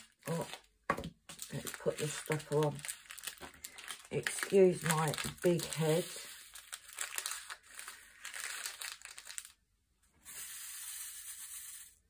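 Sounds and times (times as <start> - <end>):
plastic bag crinkling: 0.0 - 9.6.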